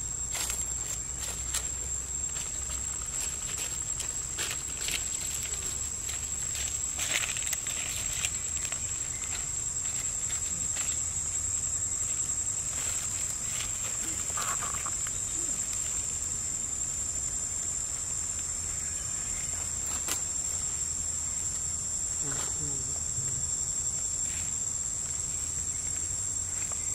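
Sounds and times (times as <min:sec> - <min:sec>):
high-pitched insect drone: 0:00.0 - 0:26.9
faint rustles and clicks: 0:00.2 - 0:11.4.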